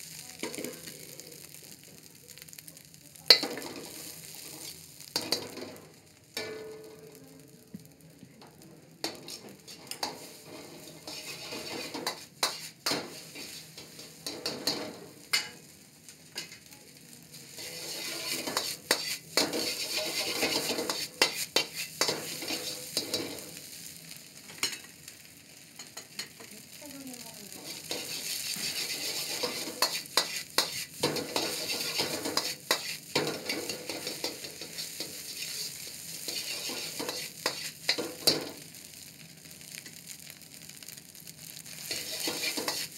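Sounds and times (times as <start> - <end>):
rice sizzling in a wok: 0.0 - 42.9
metal ladle clanking on wok: 6.4 - 7.0.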